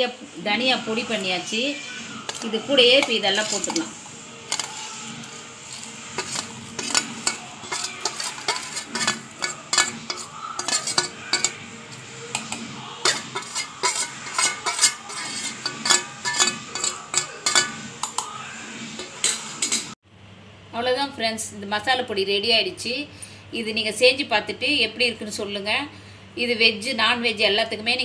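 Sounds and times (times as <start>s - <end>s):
spoon scraping and clinking on metal: 2.2s - 18.3s, 19.0s - 20.0s.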